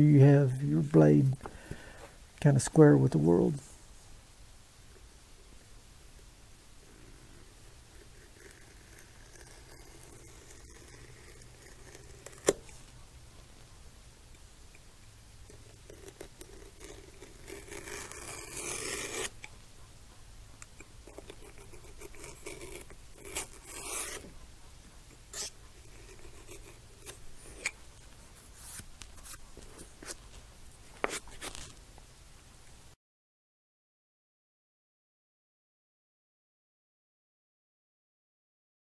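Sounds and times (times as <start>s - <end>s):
low steady hum: 0.0s - 32.9s
knife cutting leather: 7.0s - 12.8s, 15.5s - 19.5s, 20.7s - 24.4s, 25.3s - 27.8s, 31.0s - 31.7s.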